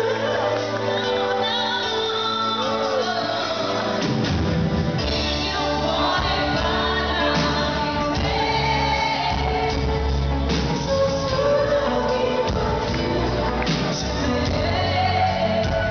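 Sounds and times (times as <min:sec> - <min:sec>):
person singing: 0:00.0 - 0:04.4, 0:05.0 - 0:15.9
live pop band playing: 0:00.0 - 0:15.9.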